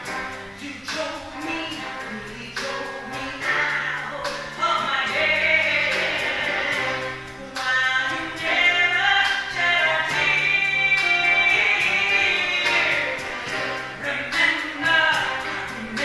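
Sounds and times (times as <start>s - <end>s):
big band playing: 0.0s - 16.0s
woman singing jazz: 0.0s - 16.0s.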